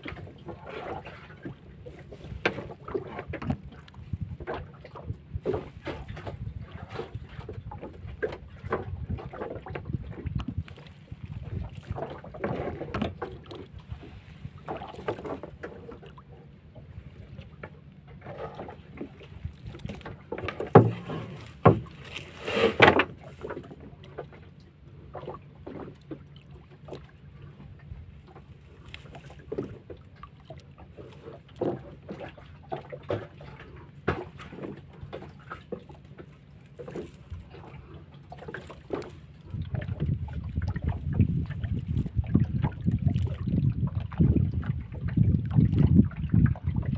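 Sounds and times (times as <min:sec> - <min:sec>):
plastic floats knocking on hull: 0:19.9 - 0:22.0.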